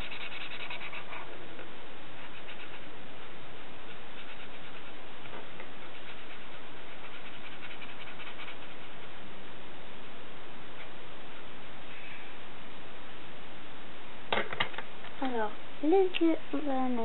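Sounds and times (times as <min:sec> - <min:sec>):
felt-tip pen scribbling on paper: 0:00.0 - 0:01.3, 0:02.2 - 0:02.9, 0:03.9 - 0:09.1.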